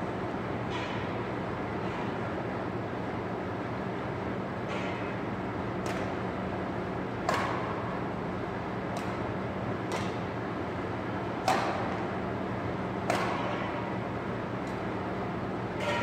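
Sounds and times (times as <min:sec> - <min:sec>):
steady low hum: 0:00.0 - 0:16.0
badminton racket hitting shuttlecock: 0:13.1 - 0:13.6.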